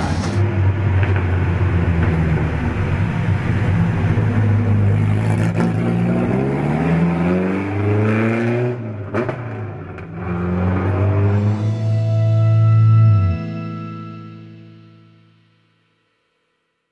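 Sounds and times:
racing engine revving: 0:03.5 - 0:11.8.

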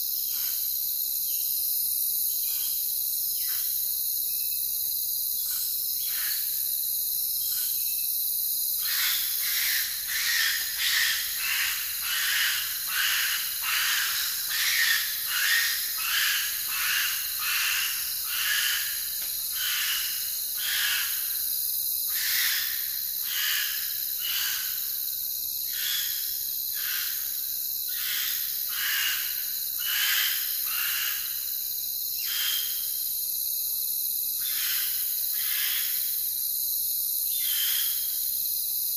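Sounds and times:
insect chorus trilling: 0:00.0 - 0:38.9
repeated animal call: 0:08.9 - 0:19.0.

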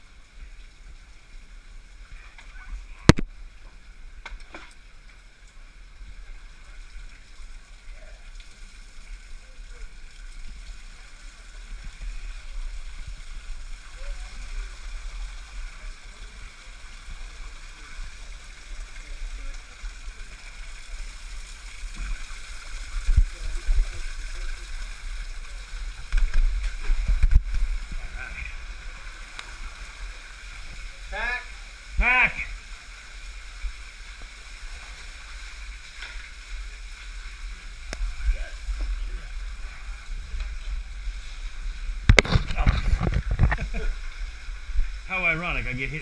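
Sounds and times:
faint flowing water: 0:00.0 - 0:46.0
water sloshing and trickling: 0:32.6 - 0:46.0
camera jostling rumble: 0:42.0 - 0:43.9.

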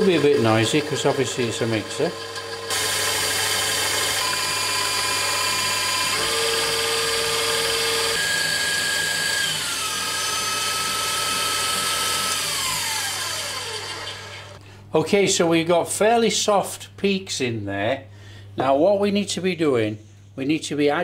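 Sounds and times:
stand mixer motor whine: 0:00.0 - 0:14.6
whisk whirring in steel bowl: 0:00.0 - 0:14.6.

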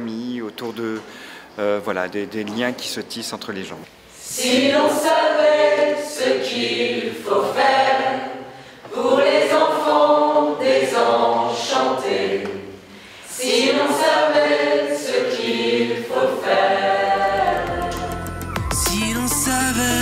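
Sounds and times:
group singing unaccompanied: 0:04.2 - 0:20.0.

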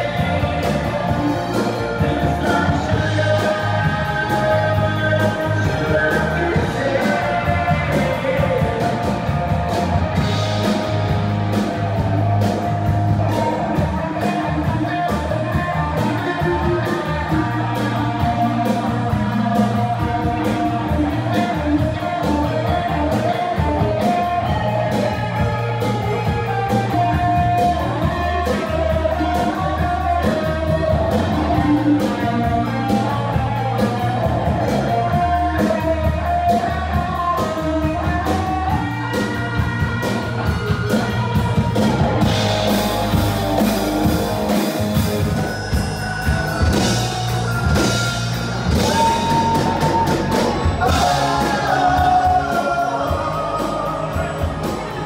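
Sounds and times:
man singing: 0:00.0 - 0:09.6, 0:13.2 - 0:41.1, 0:48.7 - 0:55.0
bass guitar: 0:00.0 - 0:55.0
electric guitars: 0:00.0 - 0:55.0
drum beat: 0:41.2 - 0:55.0.

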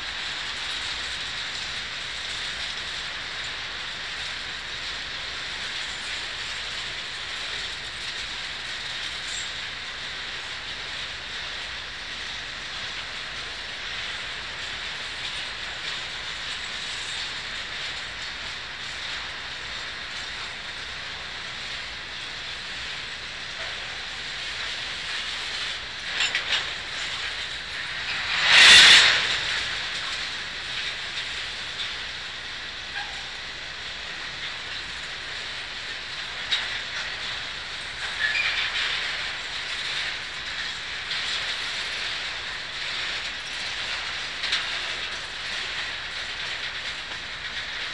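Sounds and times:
train wheels rushing on rail: 0:00.0 - 0:47.9.

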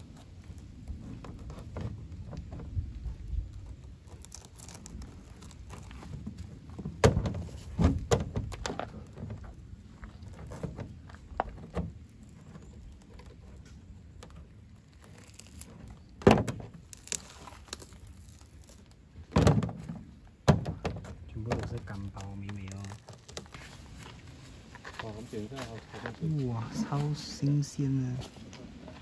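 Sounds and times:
knife prying open spiky husk: 0:03.5 - 0:06.0, 0:15.0 - 0:19.0.

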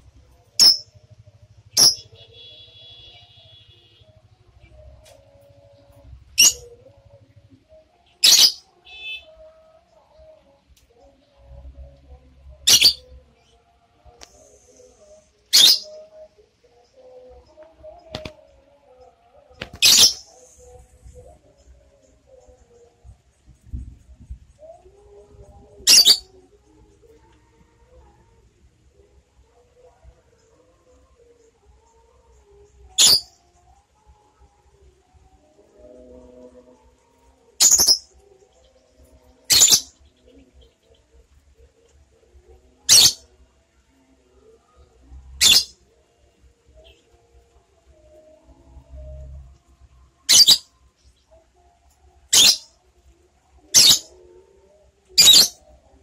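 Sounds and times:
lovebird shrill calls: 0:12.7 - 0:13.0, 0:25.9 - 0:26.2, 0:33.0 - 0:33.3, 0:37.6 - 0:38.0, 0:42.9 - 0:43.2, 0:45.4 - 0:45.7, 0:50.3 - 0:50.6, 0:52.3 - 0:52.6, 0:55.2 - 0:55.5.

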